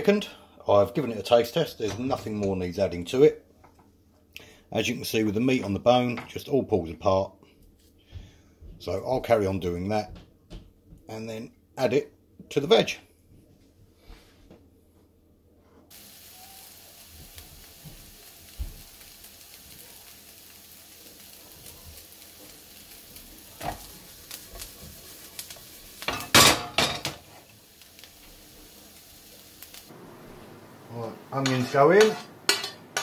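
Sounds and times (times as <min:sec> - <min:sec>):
onion sizzling in a pan: 0:15.9 - 0:33.0.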